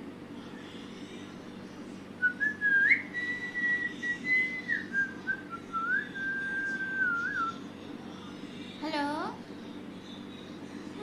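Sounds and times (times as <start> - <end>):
parakeet whistling: 2.2 - 7.6.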